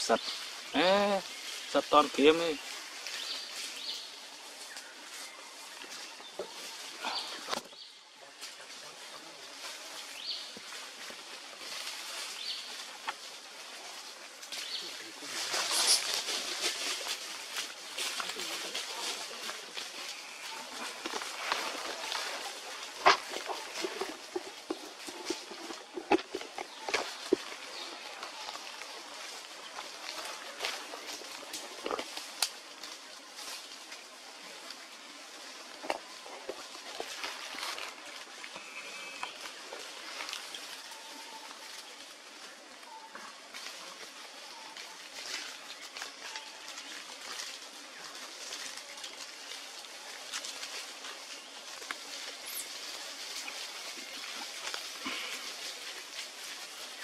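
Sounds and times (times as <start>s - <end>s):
steady hiss: 0.0s - 25.6s.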